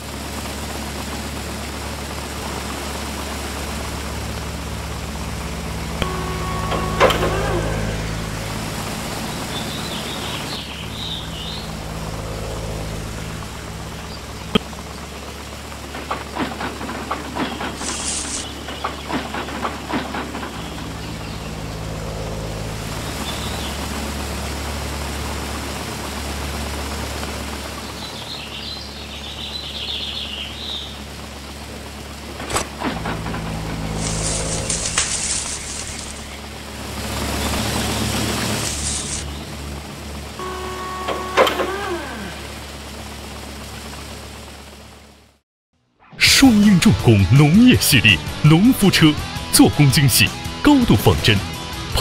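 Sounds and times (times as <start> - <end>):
toy tractor engine drone: 2.2 - 25.6, 32.4 - 44.0
birds chirping: 4.4 - 24.2.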